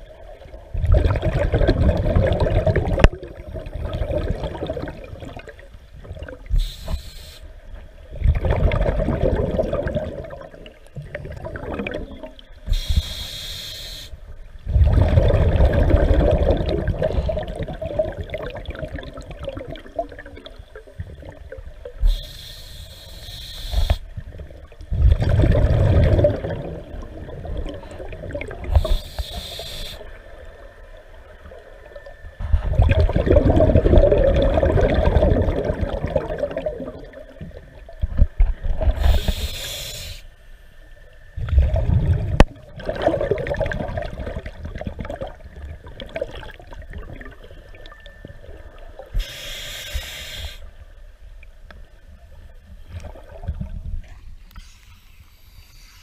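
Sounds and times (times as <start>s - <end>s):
exhaust bubbles rumbling: 0.6s - 6.4s, 8.1s - 12.5s, 14.6s - 21.6s, 24.4s - 28.8s, 32.4s - 39.0s, 41.4s - 47.9s
regulator inhale hiss: 6.5s - 7.7s, 12.6s - 14.3s, 22.0s - 24.2s, 27.8s - 30.4s, 38.9s - 40.7s, 49.1s - 50.9s, 54.4s - 56.0s.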